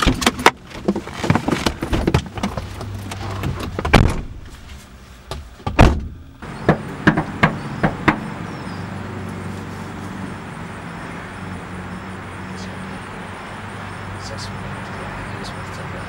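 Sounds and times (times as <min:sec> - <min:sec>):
rustling: 0:00.0 - 0:05.7
car doors opening and shutting: 0:00.0 - 0:16.0
knocks on a door: 0:05.7 - 0:08.2.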